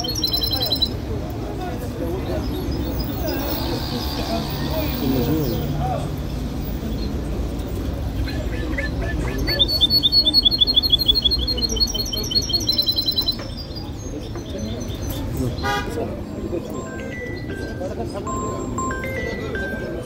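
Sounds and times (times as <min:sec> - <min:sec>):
cage bird trilling chirps: 0:00.0 - 0:01.0, 0:02.1 - 0:05.8, 0:08.1 - 0:15.8
low background chatter: 0:00.0 - 0:20.0.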